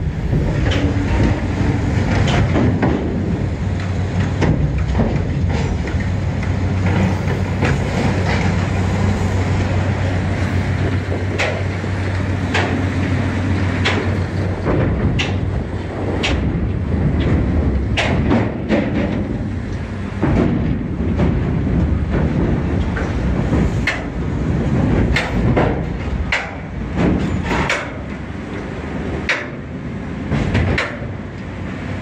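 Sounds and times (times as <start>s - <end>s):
heavy machinery rumbling: 0.0s - 32.0s
metallic clanks and knocks: 0.4s - 8.8s, 13.8s - 28.2s, 29.2s - 31.2s.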